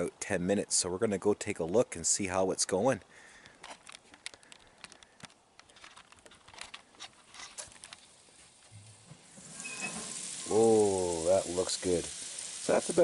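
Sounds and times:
light hiss: 6.8 - 13.0.

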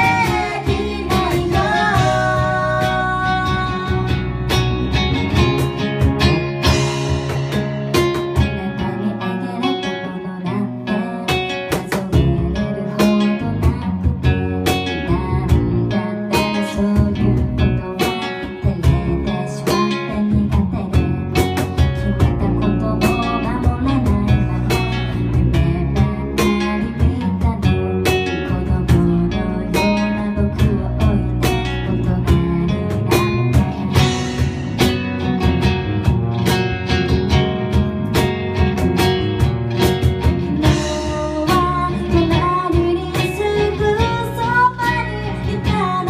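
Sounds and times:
woman singing: 0.0 - 4.6, 8.4 - 34.5, 40.4 - 46.0
acoustic guitar strumming: 0.0 - 9.3, 32.6 - 46.0
bass guitar: 0.0 - 46.0.

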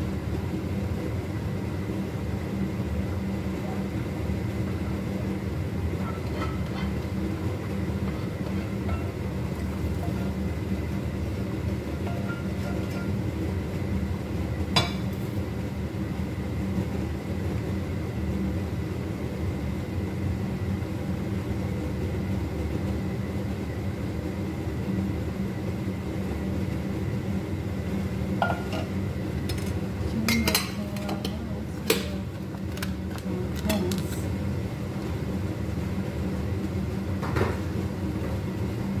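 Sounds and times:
range hood fan rumbling: 0.0 - 39.0
cookware clinking: 28.4 - 28.9.

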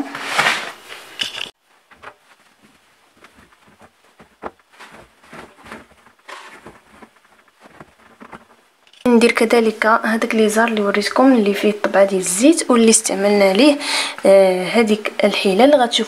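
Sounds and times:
clothes rustling: 0.0 - 9.2.

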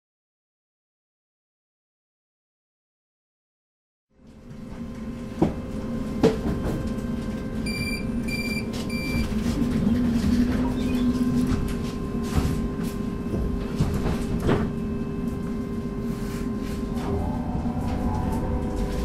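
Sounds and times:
tram equipment humming: 4.4 - 19.0
short high door warning beeps: 7.7 - 9.3.

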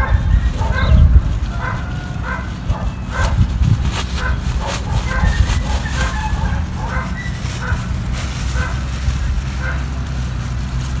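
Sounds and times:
animal yelping: 0.0 - 3.4, 4.2 - 7.9
low rumble: 0.0 - 11.0
plastic bag crinkling: 0.0 - 11.0.

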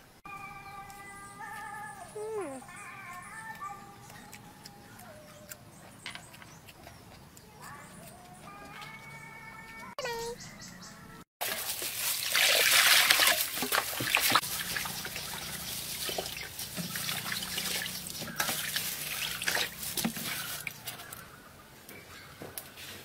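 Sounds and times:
water dripping: 11.4 - 21.0
water sloshing in a metal basin: 11.4 - 21.2.

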